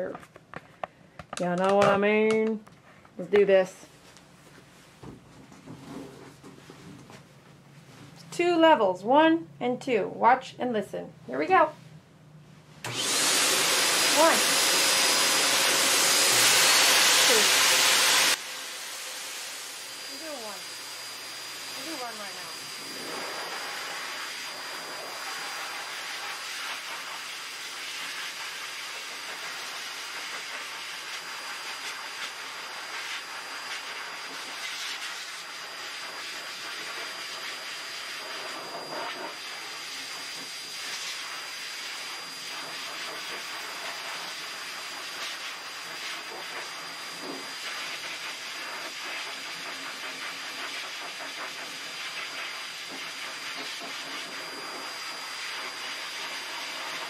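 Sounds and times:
dog dryer blowing air: 12.8s - 57.0s.

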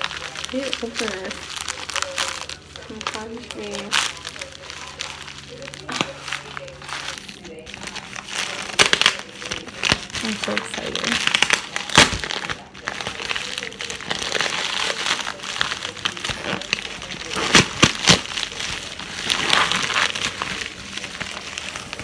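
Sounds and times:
plastic bag crinkling: 0.0s - 22.0s
sharp plastic crackles: 0.0s - 22.0s.

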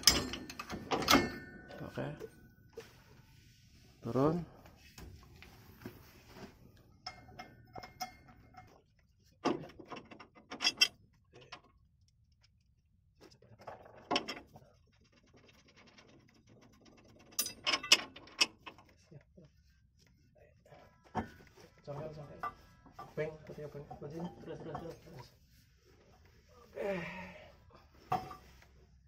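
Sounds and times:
metal tools clanking and rattling: 0.0s - 2.5s, 6.9s - 11.8s, 13.6s - 14.6s, 15.3s - 18.9s, 21.1s - 25.3s.

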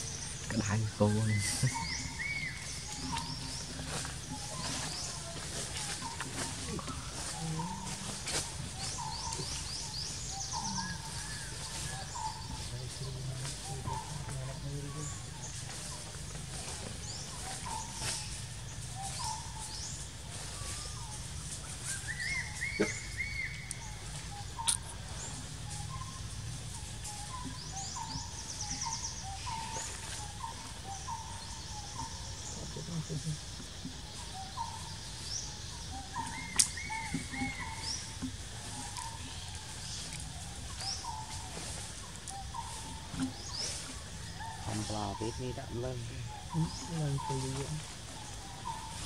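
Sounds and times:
forest birds calling: 0.0s - 49.0s
high chirps: 22.1s - 28.1s.

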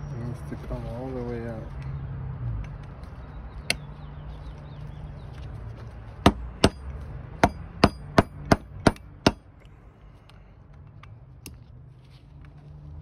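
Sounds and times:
sharp metallic knocks: 6.2s - 9.5s.

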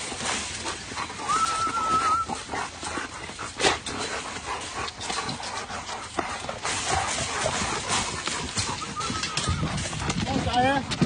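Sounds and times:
dogs scuffling: 0.0s - 11.0s
dog whining: 1.2s - 2.5s, 8.5s - 9.9s.

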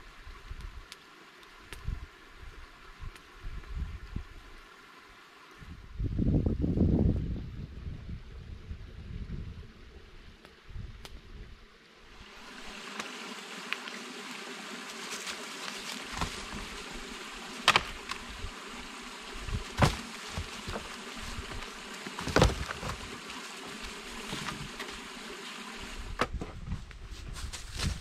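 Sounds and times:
creek running: 11.8s - 26.2s
footsteps on dry leaves: 14.6s - 17.2s, 19.5s - 24.8s, 27.1s - 28.0s
dead wood snapping: 17.6s - 18.2s, 19.7s - 20.9s.

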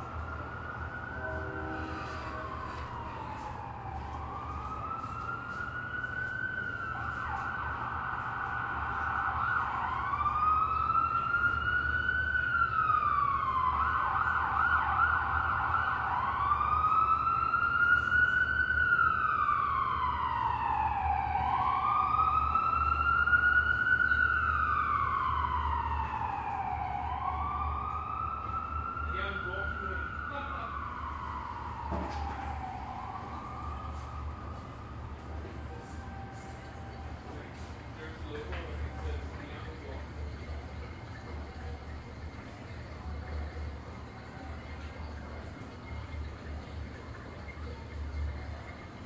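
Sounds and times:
faster rising siren tone: 0.0s - 37.2s
siren wailing: 0.0s - 41.2s
low city hum: 0.0s - 49.0s.

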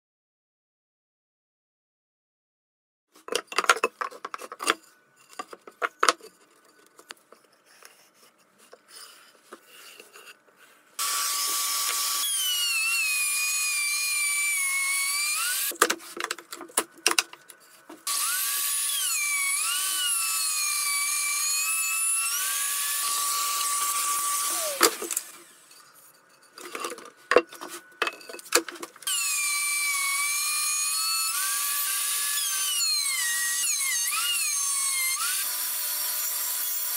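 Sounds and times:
timber pieces knocking and clattering: 3.2s - 4.8s, 15.7s - 18.0s
router whining: 11.0s - 15.8s, 18.0s - 25.8s, 29.0s - 36.9s.

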